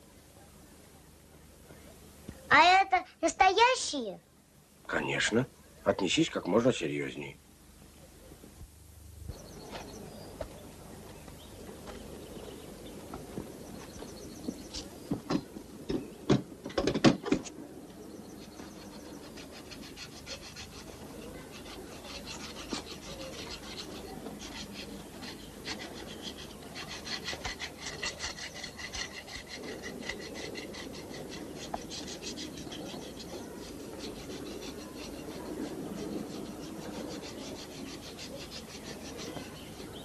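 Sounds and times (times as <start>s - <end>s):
quick rubbing strokes: 18.3s - 40.0s.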